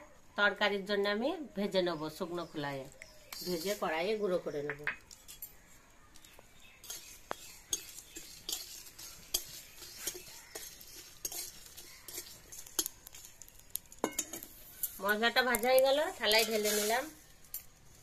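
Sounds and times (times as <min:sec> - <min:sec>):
metal spatula scraping metal pan: 0:06.8 - 0:15.1, 0:16.3 - 0:17.2.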